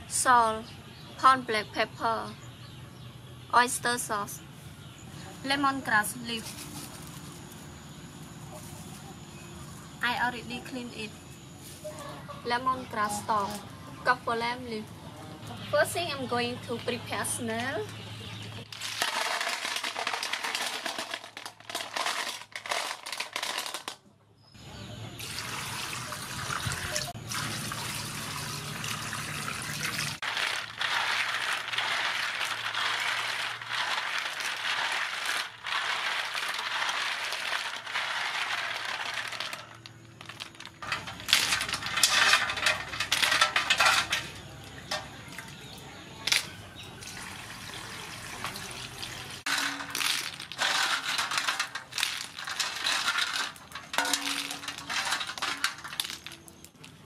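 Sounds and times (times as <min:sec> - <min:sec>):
shells clattering into steel bowl: 0:18.7 - 0:24.0, 0:30.2 - 0:45.4, 0:49.5 - 0:56.7
water pouring: 0:25.2 - 0:39.3, 0:47.0 - 0:56.2
shells swished in water: 0:30.2 - 0:44.2, 0:49.5 - 0:56.6.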